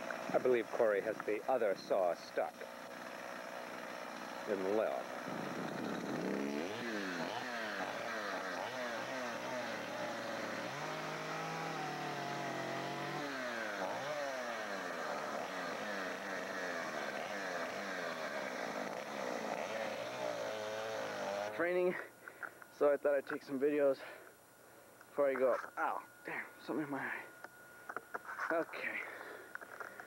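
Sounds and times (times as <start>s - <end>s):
chainsaw revving: 0.0s - 21.7s.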